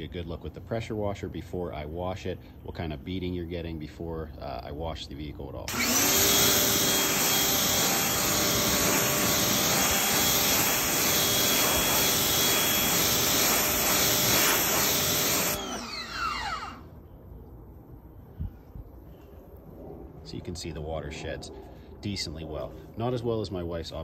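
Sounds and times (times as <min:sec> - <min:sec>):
electric motor pump whine: 0:05.7 - 0:16.9
pressure washer water hiss: 0:05.8 - 0:15.7.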